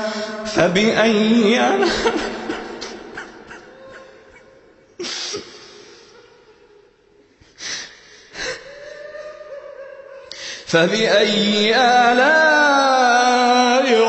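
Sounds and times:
sharp breathy inhalations: 0.0s - 0.6s, 5.0s - 6.4s, 7.3s - 9.0s, 10.3s - 10.7s
person chanting: 0.0s - 4.6s, 8.7s - 14.0s.

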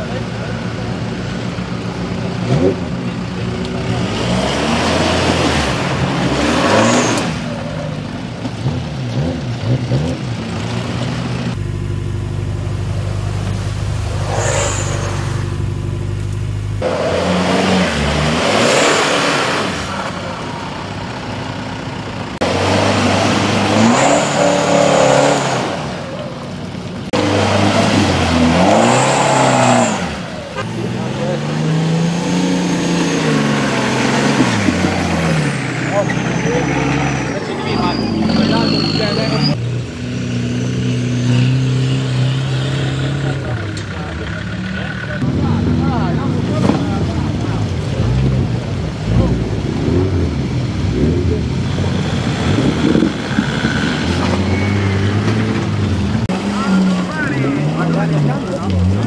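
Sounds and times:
engine revving hard: 3.7s - 7.6s, 16.8s - 20.4s, 22.4s - 26.1s, 27.1s - 39.6s, 40.2s - 59.0s.

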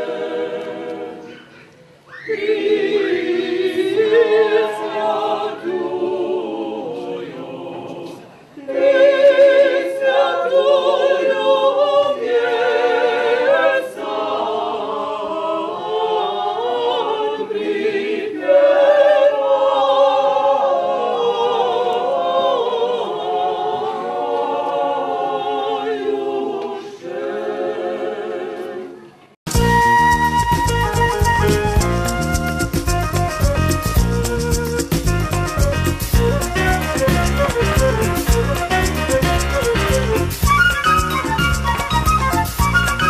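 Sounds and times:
choir singing a cappella: 0.0s - 29.4s, 35.6s - 43.0s
recorded music: 29.5s - 43.0s.

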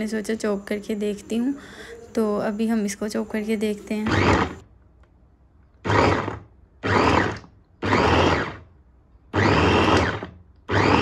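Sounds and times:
electric chopper motor whirring: 4.0s - 4.6s, 5.8s - 8.7s, 9.3s - 11.0s.

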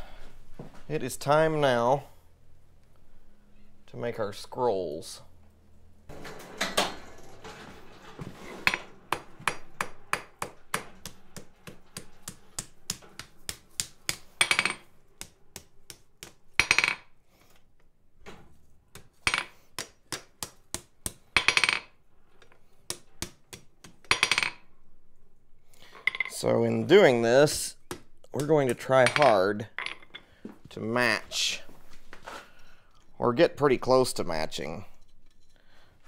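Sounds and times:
hammer striking steel on anvil: 8.6s - 17.0s.

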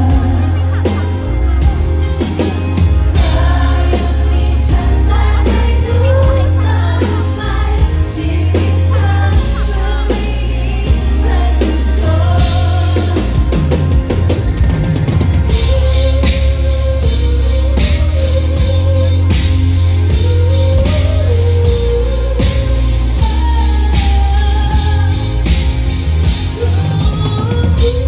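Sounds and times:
woman singing pop ballad: 0.0s - 1.8s, 3.1s - 13.9s, 20.1s - 28.0s
band with strong bass line: 0.0s - 28.0s.

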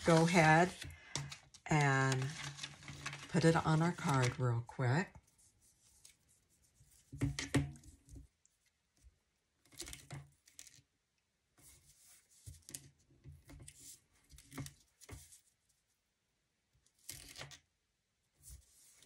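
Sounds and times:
cardstock rustling and tapping: 0.0s - 4.4s.

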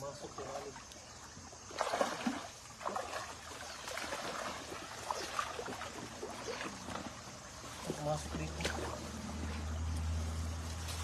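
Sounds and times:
running water: 0.0s - 9.7s
boots splashing through water: 1.7s - 9.8s.

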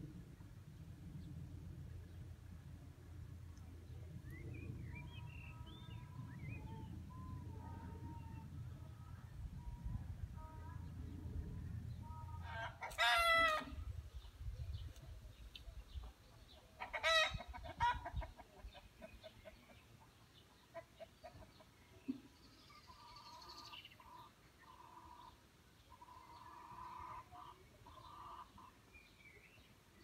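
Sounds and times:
chickens calling: 16.8s - 19.8s, 26.0s - 28.8s.

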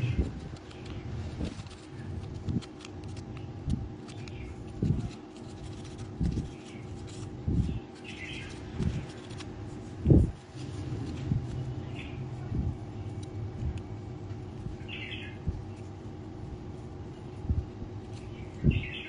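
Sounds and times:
knife shaving bamboo stick: 0.0s - 12.4s
faint bird chirps: 18.2s - 19.0s.

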